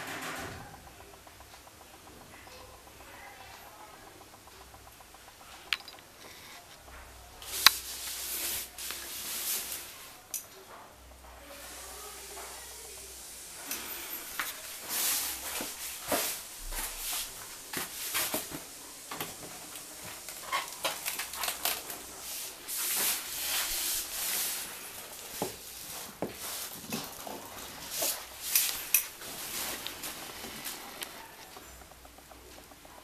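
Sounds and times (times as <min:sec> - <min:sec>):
sharp taps: 0:00.4 - 0:08.2.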